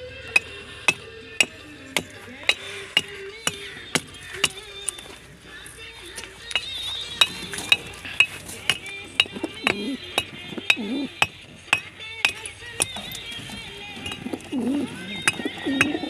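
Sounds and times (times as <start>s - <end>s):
regular sharp ticking: 0.3s - 5.1s, 6.5s - 16.0s
pigeons cooing: 6.8s - 16.0s.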